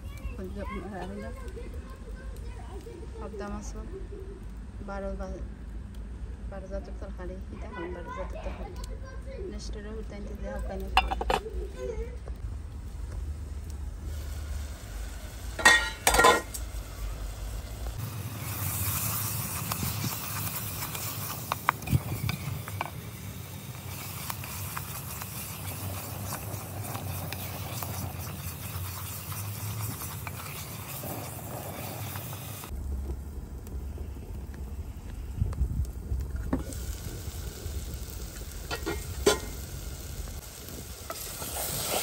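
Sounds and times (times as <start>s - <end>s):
spices sizzling: 0.0s - 42.0s
wooden spoon scraping pot: 10.8s - 11.5s, 23.8s - 32.7s.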